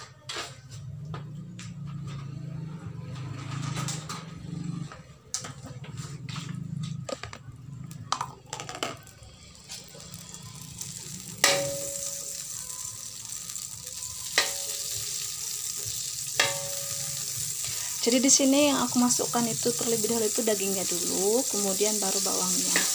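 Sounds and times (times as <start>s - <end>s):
fat sizzling: 8.1s - 22.9s
spatula scraping wok: 8.6s - 22.9s
spatula striking wok: 10.9s - 13.6s, 14.2s - 17.9s, 22.3s - 22.9s.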